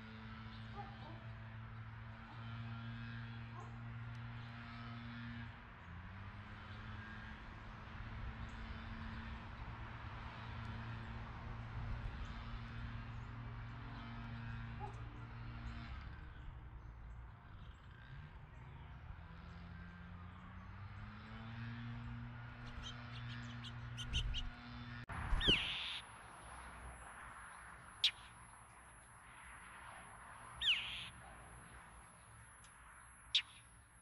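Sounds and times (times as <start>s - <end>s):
distant motor humming: 0.0s - 34.0s
harsh bird call: 25.3s - 26.1s, 30.6s - 31.2s.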